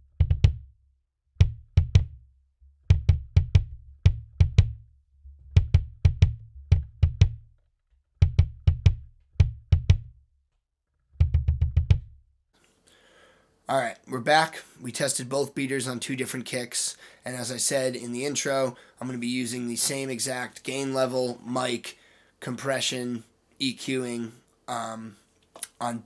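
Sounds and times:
kick drum strokes: 0.0s - 0.8s, 1.4s - 7.5s, 8.2s - 10.2s, 11.2s - 12.2s.

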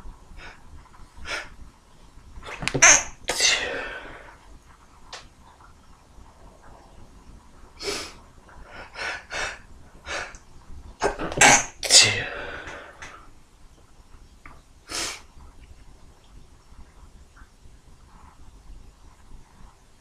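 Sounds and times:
man stifling sneezes: 2.5s - 4.2s, 11.0s - 13.0s.

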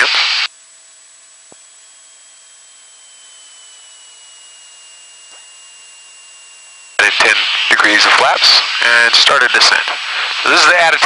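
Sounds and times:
faint high whine: 0.0s - 11.0s
aircraft cockpit hiss: 6.2s - 11.0s.

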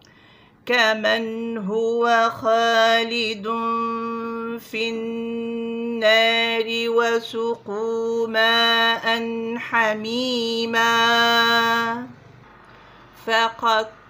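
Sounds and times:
woman reciting melodically: 0.6s - 12.4s, 13.1s - 14.0s.

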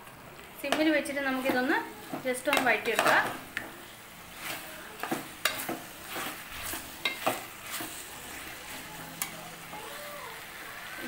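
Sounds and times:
faint sizzle: 0.0s - 11.0s
metal spoon scraping pot: 4.4s - 8.0s.

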